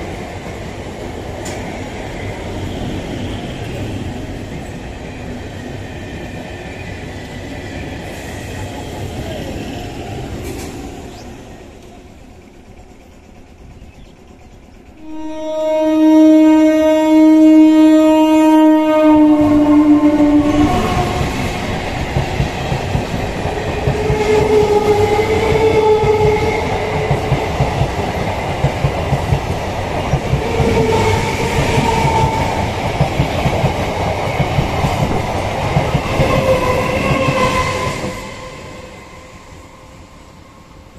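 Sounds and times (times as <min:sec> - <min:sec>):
train horn: 0:15.0 - 0:21.4, 0:36.3 - 0:39.5
train wheels clattering over rail joints: 0:21.2 - 0:37.4.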